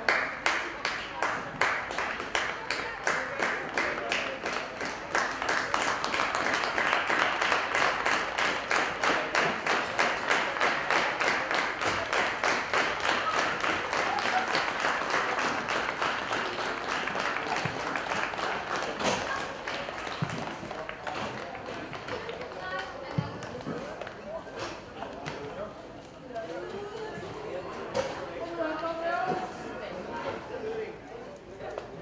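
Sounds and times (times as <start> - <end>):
group clapping in rhythm: 0.0 - 22.8.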